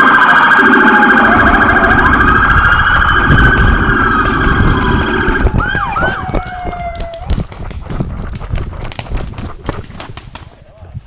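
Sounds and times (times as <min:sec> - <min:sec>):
warbling electronic siren: 0:00.0 - 0:07.5.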